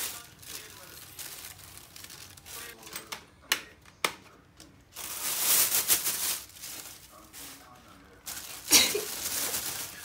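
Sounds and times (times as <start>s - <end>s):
plastic bag crackling: 0.0s - 2.8s, 4.9s - 10.0s
plastic bag rustling: 0.0s - 3.0s, 4.9s - 10.0s.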